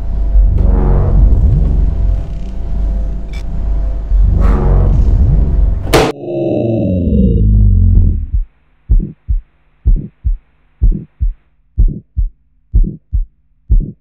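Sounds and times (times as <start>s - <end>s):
loud low rumble: 0.0s - 13.8s
faint low hum: 6.5s - 14.0s
heartbeat double thump: 7.9s - 14.0s.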